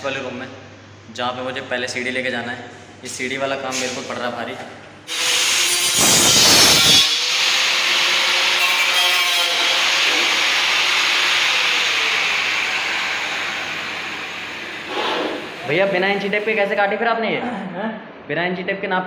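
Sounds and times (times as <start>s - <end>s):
angle grinder cutting ceiling tile: 5.1s - 16.4s.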